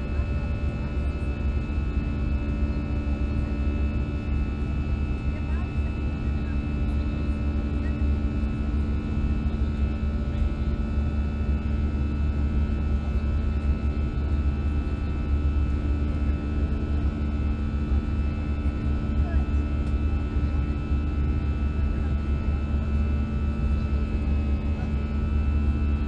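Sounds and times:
airplane cabin rumble: 0.0s - 26.0s.

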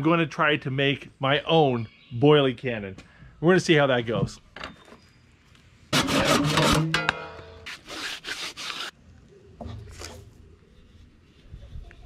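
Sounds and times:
rasping strokes on plastic pipe: 5.9s - 6.9s, 7.6s - 8.9s.

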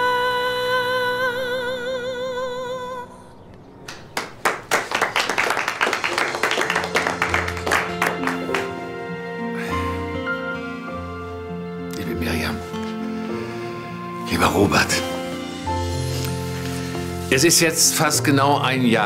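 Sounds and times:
woman singing with vibrato: 0.0s - 3.3s
piano accompaniment: 3.6s - 19.0s
people applauding: 3.9s - 9.1s.

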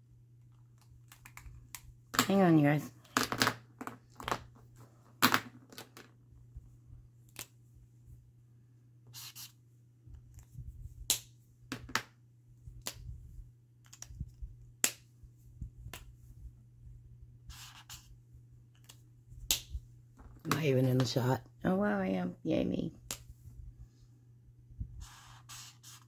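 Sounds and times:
steady low hum: 6.1s - 26.0s.

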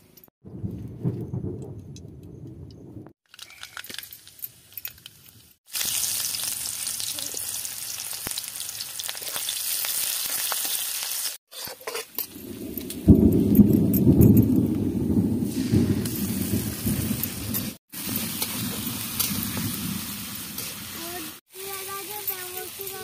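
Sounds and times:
onions sizzling in hot oil: 5.7s - 11.4s, 15.5s - 23.0s
spatula scraping a wok: 11.5s - 12.2s.

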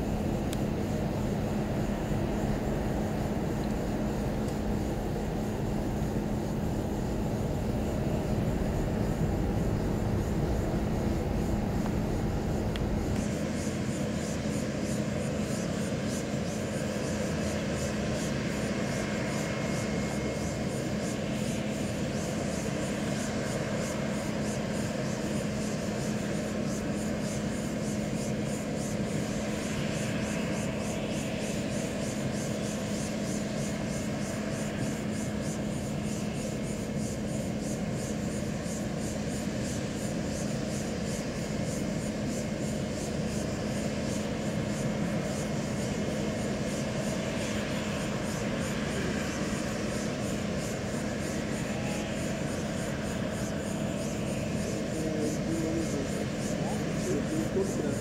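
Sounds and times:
distant jet rush: 0.0s - 23.3s, 40.7s - 58.0s.

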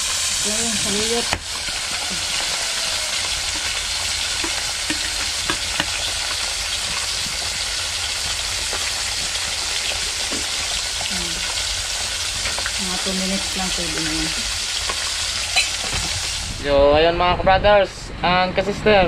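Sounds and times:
fire and pots sizzling: 0.0s - 16.8s
ladle stirring in pot: 0.8s - 12.8s
ladle knocking on pot: 1.3s - 7.0s.

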